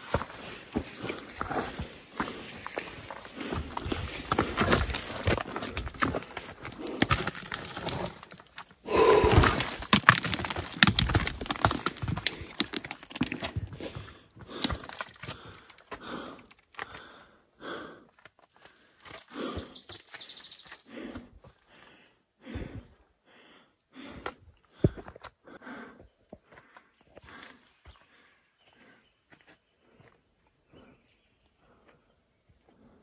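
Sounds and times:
boots crunching on loose rock: 0.0 - 17.2
hard breathing: 0.0 - 33.0.

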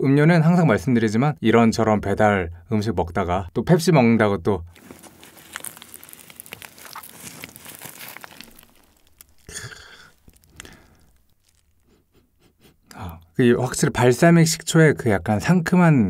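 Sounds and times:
fried chicken crinkling and crackling: 4.8 - 12.2
person sniffing: 9.5 - 11.2.

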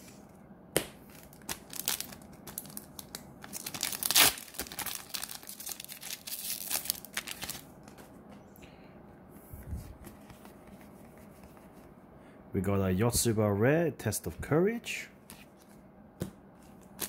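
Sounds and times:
foil pack tearing open: 1.1 - 7.6
wrapper crinkling: 1.1 - 7.7.

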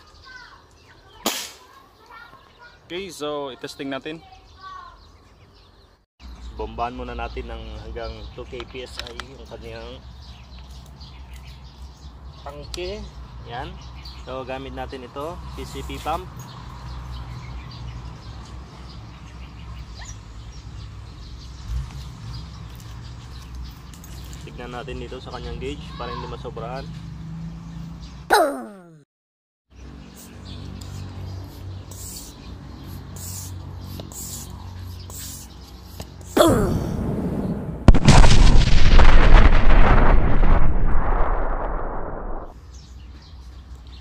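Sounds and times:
bird chirp: 0.0 - 26.3, 29.7 - 41.4
explosion blast: 36.4 - 42.5
low outdoor rumble: 36.9 - 42.5.

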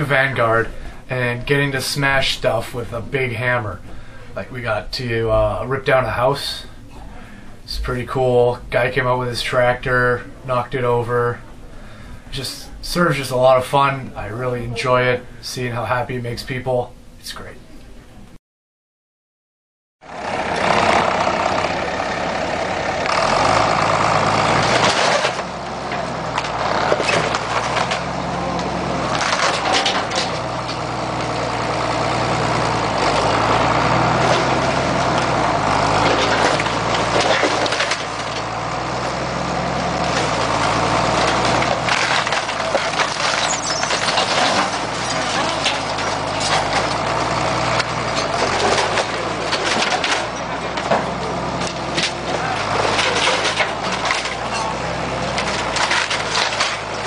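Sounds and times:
tractor engine under heavy load: 0.0 - 15.4, 20.0 - 57.0
wood cracking and splintering: 20.3 - 57.0.

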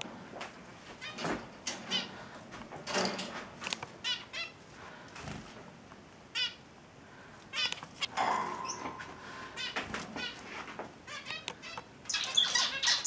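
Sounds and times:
finches chirping: 7.6 - 10.4, 11.1 - 13.0.

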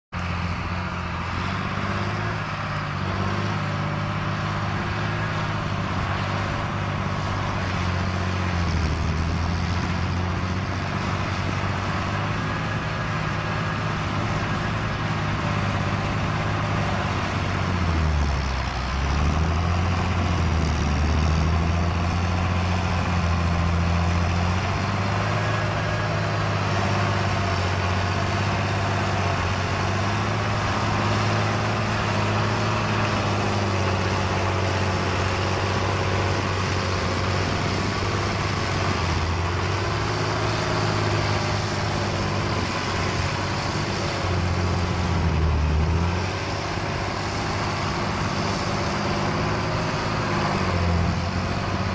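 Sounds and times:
tractor diesel engine under load: 0.1 - 51.9.

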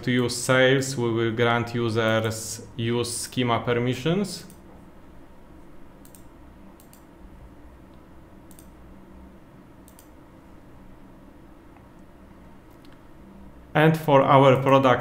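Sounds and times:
low room hum: 0.0 - 15.0
computer mouse clicks: 6.0 - 7.1, 7.9 - 8.8, 9.8 - 10.2, 12.7 - 13.0.

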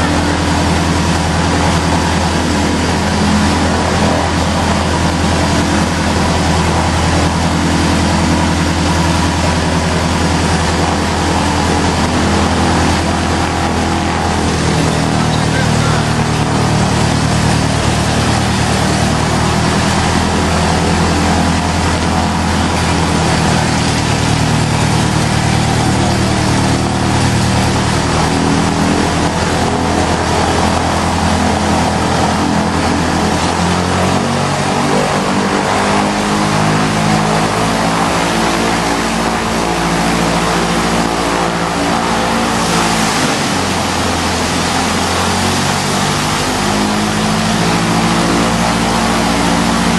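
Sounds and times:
light aircraft engine and propeller: 0.0 - 49.9.

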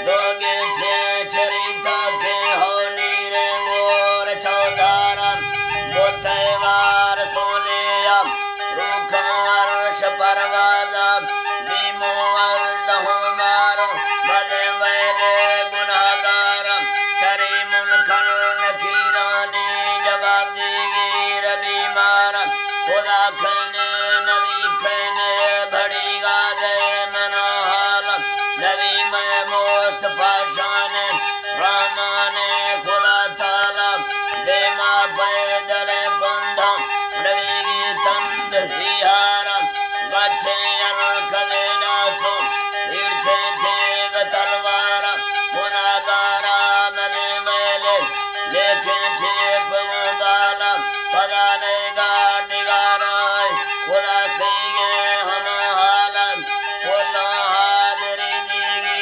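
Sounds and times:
man singing: 0.0 - 59.0
wooden flute melody: 0.0 - 59.0
steady drone note: 4.5 - 7.5.

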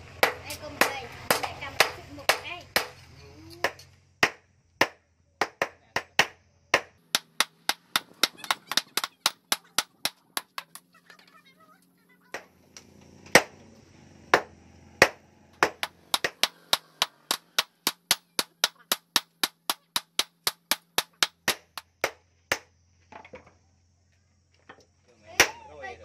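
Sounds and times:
hammer striking anvil: 14.4 - 21.8.

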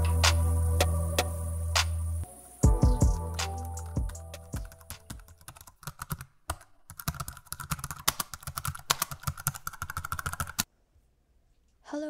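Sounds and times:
music: 0.0 - 5.2
typing on computer keyboard: 4.6 - 10.7.

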